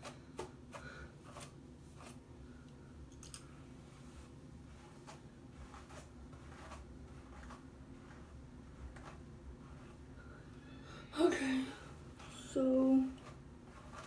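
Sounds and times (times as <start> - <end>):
hairbrush swishing through hair: 1.2 - 2.2, 3.8 - 10.1, 11.9 - 14.0.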